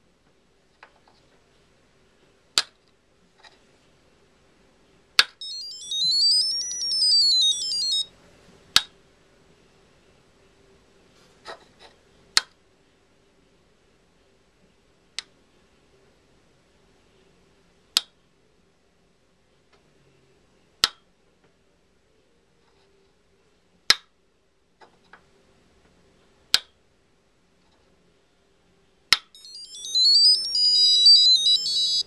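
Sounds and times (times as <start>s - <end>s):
buzzer high beeps: 5.4s - 8.1s, 29.4s - 32.0s.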